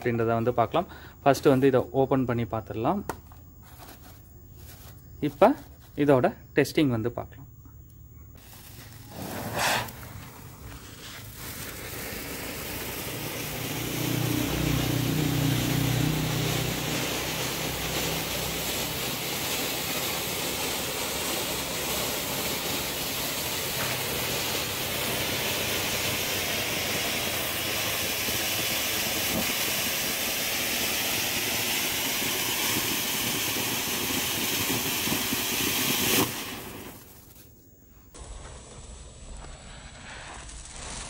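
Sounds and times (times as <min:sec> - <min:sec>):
fountain firework hissing: 0:08.4 - 0:37.4, 0:38.2 - 0:41.0.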